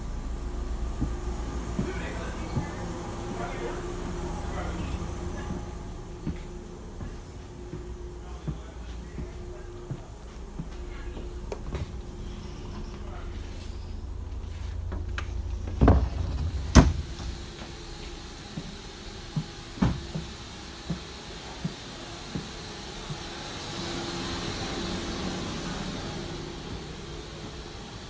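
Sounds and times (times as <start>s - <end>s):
footsteps down an aisle: 0.0s - 28.0s
train door clunks: 14.9s - 23.2s.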